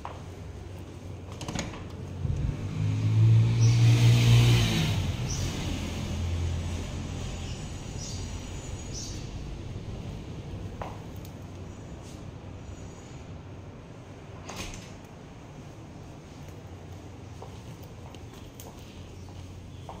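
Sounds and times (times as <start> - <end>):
vehicle passing: 2.1 - 10.9.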